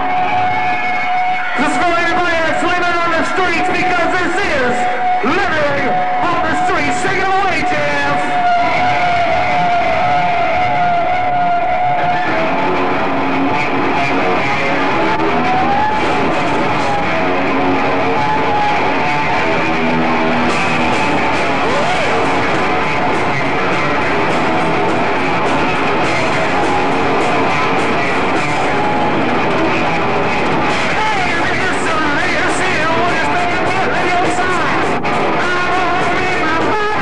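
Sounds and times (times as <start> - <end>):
electric guitar lead: 0.0 - 37.0
live rock band: 0.0 - 37.0.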